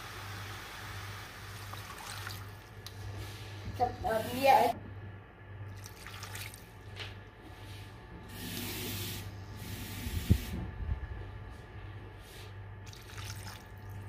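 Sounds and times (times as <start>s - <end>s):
water pouring and splashing: 1.6s - 2.7s, 5.7s - 6.7s, 12.9s - 14.0s.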